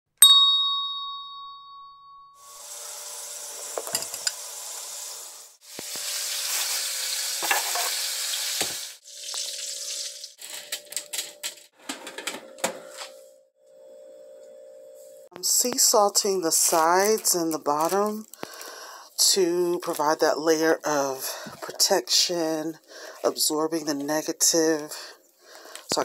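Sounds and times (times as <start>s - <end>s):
bright chime: 0.2s - 2.6s
hissing scraping of seeds: 4.4s - 8.6s.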